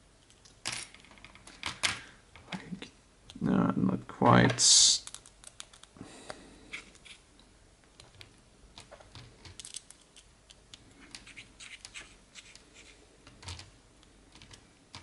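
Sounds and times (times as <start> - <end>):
plastic parts handled: 8.0 - 12.6
screwdriver clicking and scratching: 8.0 - 13.7.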